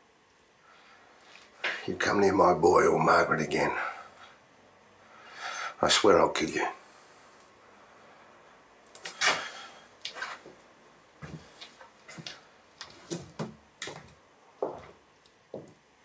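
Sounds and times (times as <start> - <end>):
scraping hiss: 9.0 - 10.5
footsteps: 9.0 - 10.6, 11.2 - 15.8.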